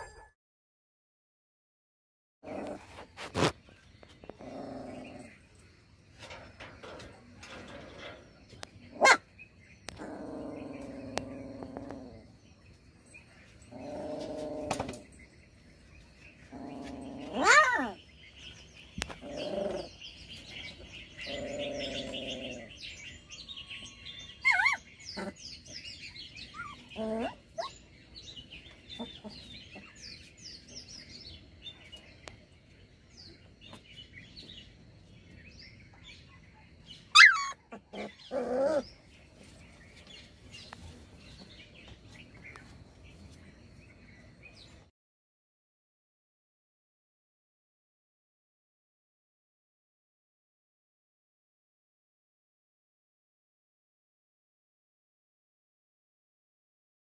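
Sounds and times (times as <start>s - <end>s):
small birds chirping: 2.4s - 44.9s
low animal calls: 6.2s - 12.4s, 19.0s - 22.9s.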